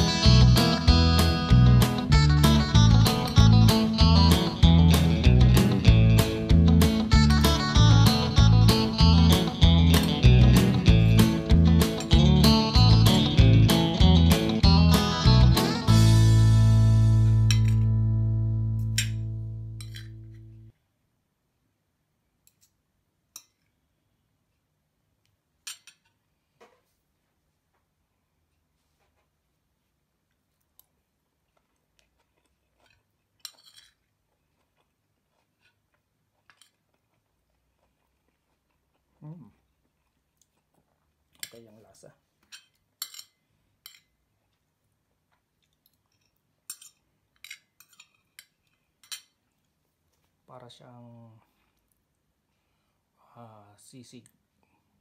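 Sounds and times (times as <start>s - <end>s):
cutlery clinking on a ceramic plate: 17.5s - 17.9s, 18.9s - 20.5s, 25.6s - 26.2s, 33.4s - 34.0s, 42.4s - 44.2s, 46.1s - 49.4s.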